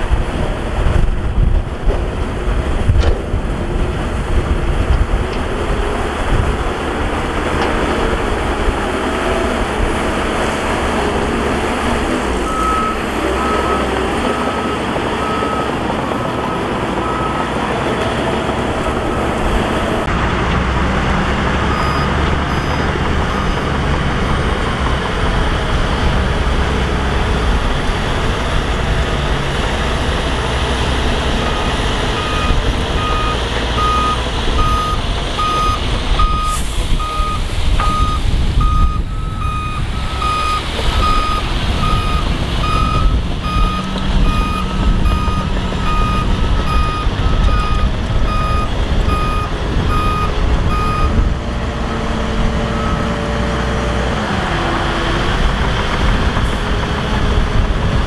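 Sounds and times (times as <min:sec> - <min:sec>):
diesel engine running: 0:00.0 - 0:58.0
reversing alarm beeping: 0:12.4 - 0:15.8, 0:16.4 - 0:17.5, 0:21.7 - 0:23.9, 0:31.4 - 0:51.2, 0:52.7 - 0:53.2.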